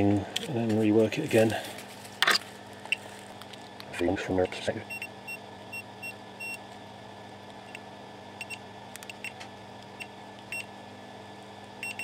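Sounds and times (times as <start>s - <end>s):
multimeter continuity beeps: 4.9s - 6.6s, 8.4s - 9.4s, 11.8s - 12.0s.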